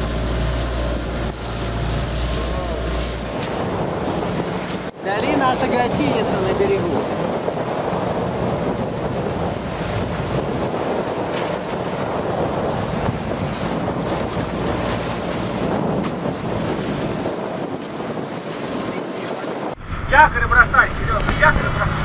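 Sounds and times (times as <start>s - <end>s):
low engine hum: 0.0s - 18.0s
waves rushing and splashing: 0.0s - 22.0s
wind buffeting microphone: 0.0s - 22.0s.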